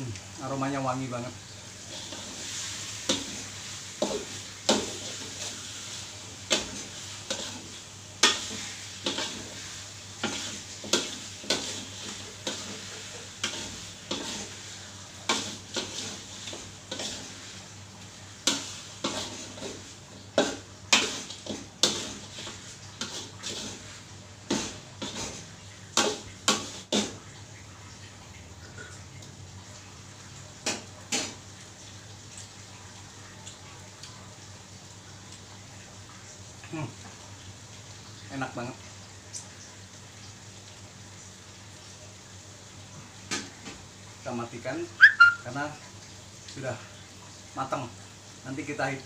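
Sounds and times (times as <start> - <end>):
food sizzling: 0.0 - 49.0
metal spatula scraping wok: 1.8 - 5.7, 6.5 - 14.6, 15.3 - 17.4, 18.4 - 19.8, 20.4 - 25.4.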